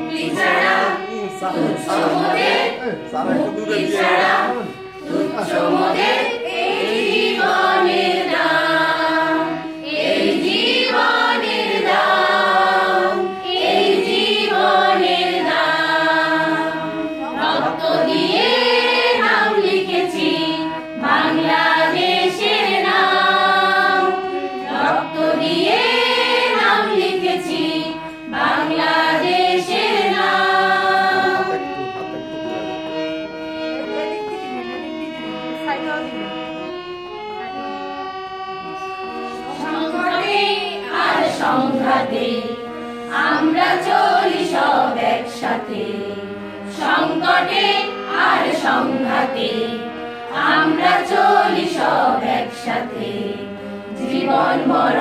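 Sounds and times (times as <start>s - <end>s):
choir singing: 0.0s - 35.4s, 38.6s - 55.0s.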